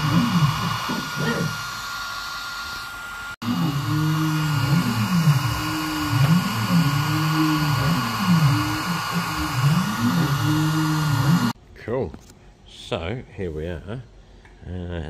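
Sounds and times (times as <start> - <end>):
stepper motors whining: 0.0 - 11.6.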